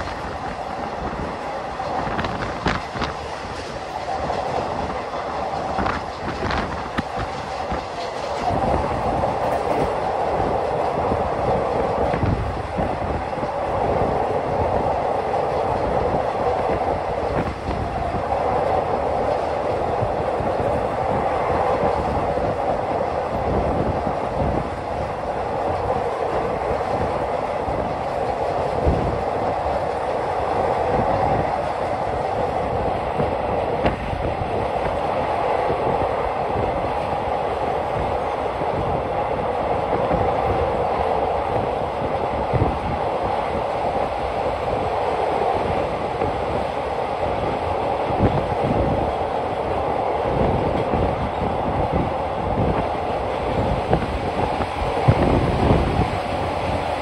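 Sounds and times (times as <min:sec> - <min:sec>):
sharp track clicks: 0:00.0 - 0:13.6
train wheels rumbling: 0:00.0 - 0:57.0.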